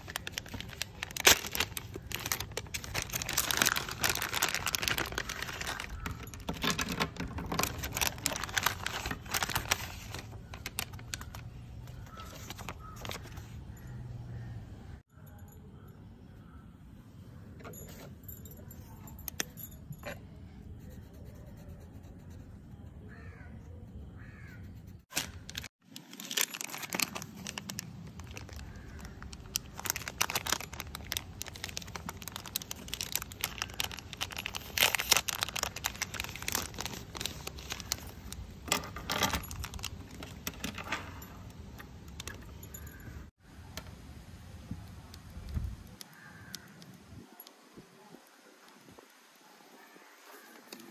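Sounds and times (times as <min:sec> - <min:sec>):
plastic pencils clicking on wood: 0:00.0 - 0:13.4, 0:26.7 - 0:40.9.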